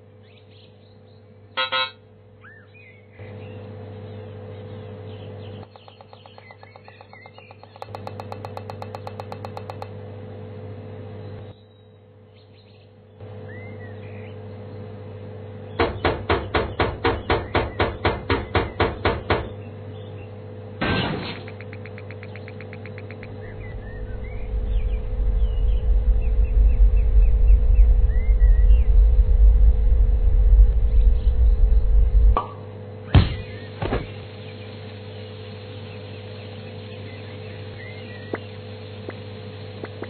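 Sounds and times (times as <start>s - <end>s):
electrical hum: 0.0s - 40.0s
loud knocks on machine: 15.8s - 19.5s, 32.4s - 34.2s
low rumble: 23.2s - 32.4s.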